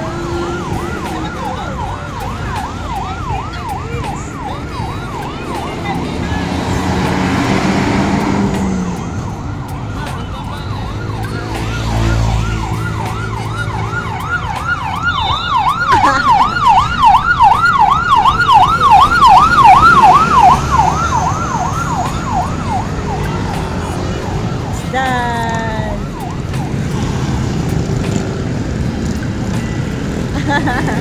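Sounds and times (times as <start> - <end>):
fire truck siren yelping: 0.0 - 31.0
truck engines rumbling: 0.0 - 31.0.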